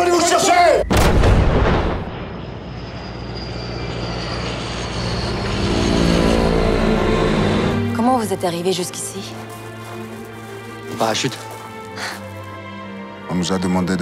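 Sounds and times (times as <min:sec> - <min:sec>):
gunshot: 0:00.9 - 0:02.4
low rumbling drone: 0:00.9 - 0:08.6.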